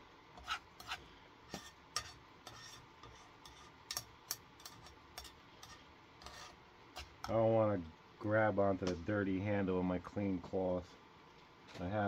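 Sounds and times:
metal tongs scraping a frying pan: 0.4s - 7.4s.

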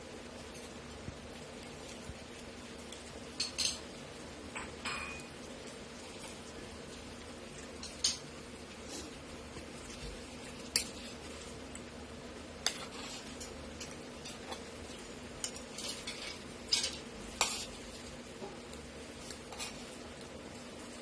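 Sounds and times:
faint steady hum: 0.0s - 21.0s
cutlery scraping a plate: 15.4s - 17.8s, 19.5s - 19.9s.

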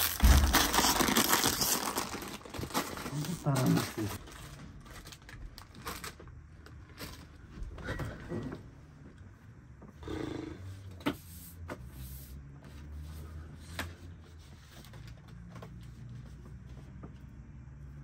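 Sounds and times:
paper rustling: 0.0s - 6.0s.

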